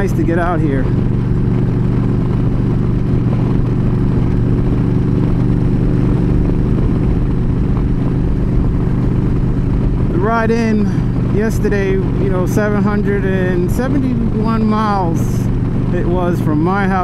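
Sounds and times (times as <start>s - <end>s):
motorcycle engine cruising: 0.0s - 17.0s
wind and road noise: 0.0s - 17.0s.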